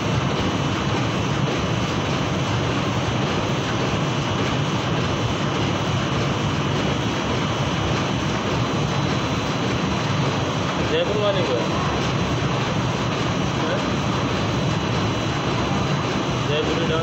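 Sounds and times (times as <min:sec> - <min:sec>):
machinery humming: 0:00.0 - 0:17.0.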